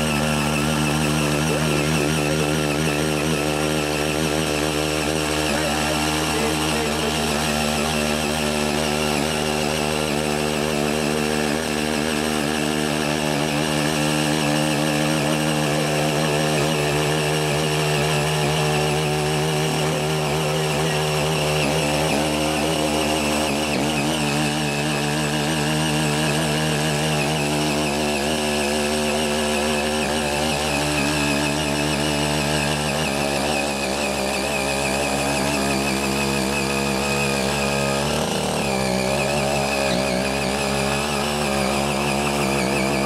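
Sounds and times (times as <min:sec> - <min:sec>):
small tiller engine running: 0:00.0 - 0:43.0.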